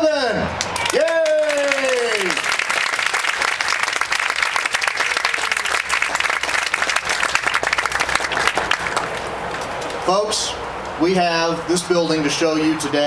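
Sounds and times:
crowd applauding: 0:00.6 - 0:09.7.

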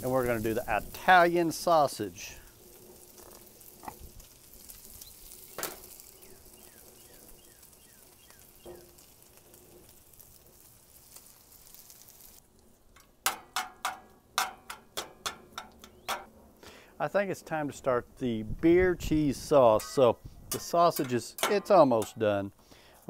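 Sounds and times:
food sizzling on a griddle: 0:00.0 - 0:12.5
metal spatula scraping a skillet: 0:19.7 - 0:22.3.

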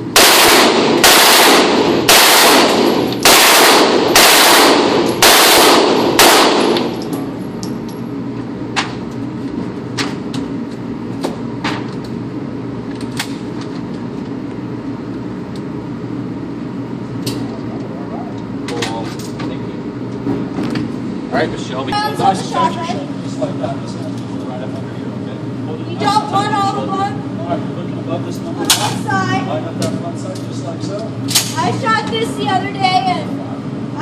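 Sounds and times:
automatic gunfire bursts: 0:00.2 - 0:06.9
single gunshots: 0:00.2 - 0:07.0.

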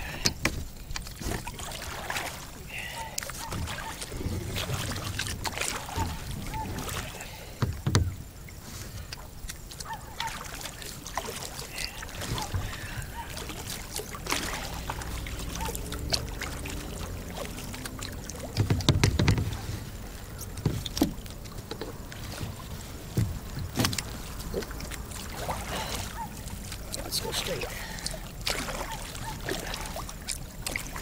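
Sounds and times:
paddle dipping and splashing: 0:00.0 - 0:31.0
water dripping: 0:00.0 - 0:31.0
knocks: 0:07.6 - 0:08.2, 0:18.6 - 0:19.6.

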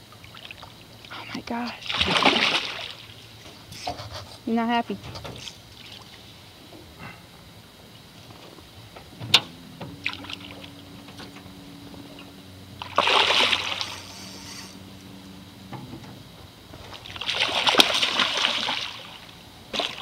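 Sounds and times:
faint low hum: 0:00.0 - 0:20.0
fish splashing at water surface: 0:01.7 - 0:03.8, 0:10.0 - 0:10.8, 0:12.8 - 0:15.0, 0:16.8 - 0:20.0.

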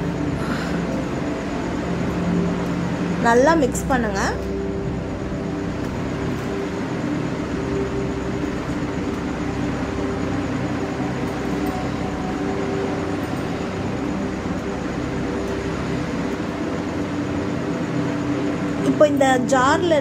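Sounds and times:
mechanical hum: 0:00.0 - 0:20.0.

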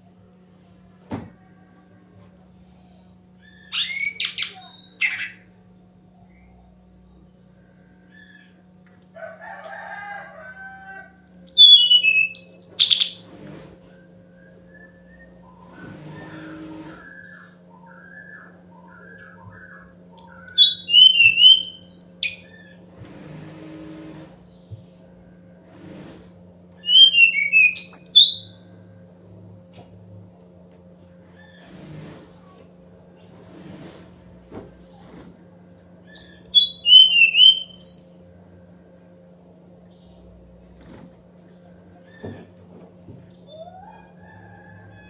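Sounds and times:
steady low hum: 0:00.0 - 0:45.0
bird whistling downward notes: 0:11.0 - 0:13.1, 0:17.0 - 0:22.4, 0:26.8 - 0:28.6, 0:36.2 - 0:38.3
soft bird twittering: 0:11.0 - 0:13.2, 0:14.0 - 0:22.8, 0:36.1 - 0:38.4.

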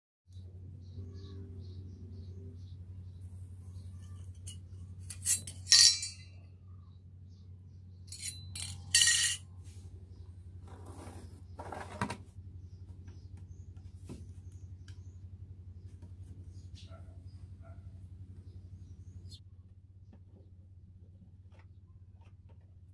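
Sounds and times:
metal ornament clinking on steel: 0:04.3 - 0:06.4, 0:08.1 - 0:09.4.

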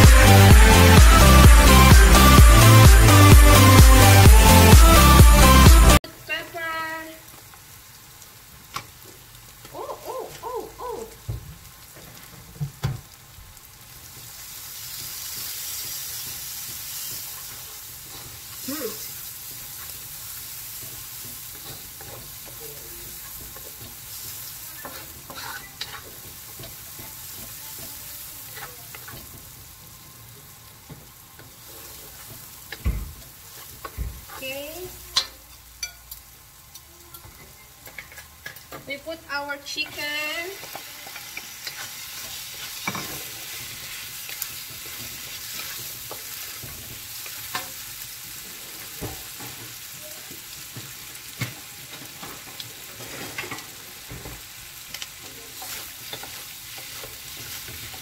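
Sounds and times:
vegetables sizzling in hot oil: 0:05.5 - 0:58.0
spatula scraping a wok: 0:14.8 - 0:29.6, 0:33.4 - 0:35.9, 0:40.6 - 0:49.6, 0:52.0 - 0:54.1, 0:54.9 - 0:58.0.

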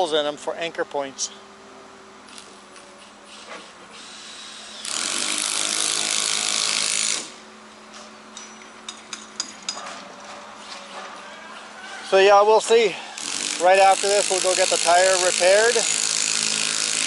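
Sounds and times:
power drill boring a hole: 0:04.0 - 0:07.3, 0:13.2 - 0:17.0.

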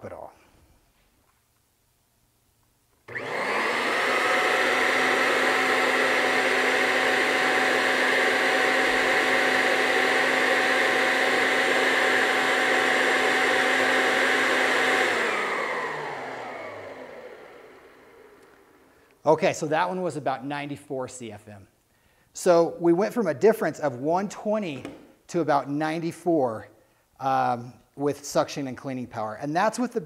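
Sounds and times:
vacuum cleaner motor whining: 0:03.1 - 0:19.1.

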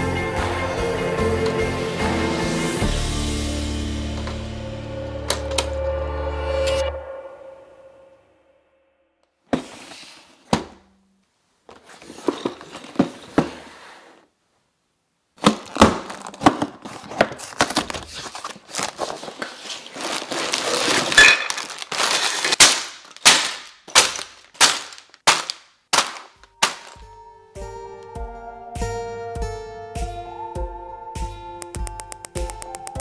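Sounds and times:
plastic bags knocking and rattling: 0:15.4 - 0:27.0
cardboard box tearing: 0:15.5 - 0:23.3.

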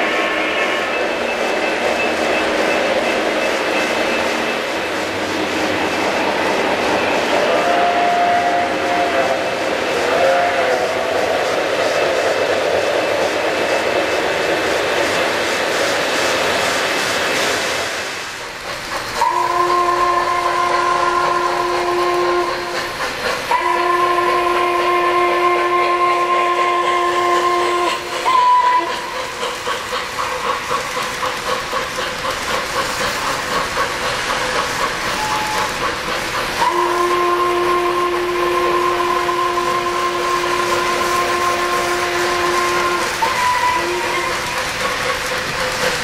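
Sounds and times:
model train chime whistle: 0:00.0 - 0:02.9, 0:07.4 - 0:11.2, 0:19.2 - 0:22.9, 0:23.5 - 0:29.2, 0:35.1 - 0:35.8, 0:36.6 - 0:44.5
train wheels clicking over track joints: 0:00.0 - 0:46.0.

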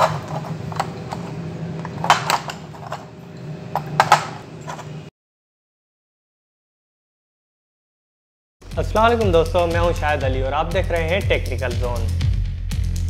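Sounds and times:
low steady hum: 0:00.0 - 0:05.1.

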